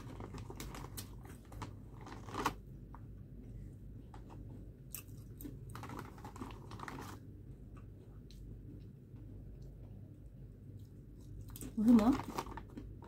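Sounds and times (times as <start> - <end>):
plastic bag crinkling: 0.0 - 2.6, 5.7 - 7.2, 11.6 - 13.0
chewing crunchy chips: 10.6 - 13.0.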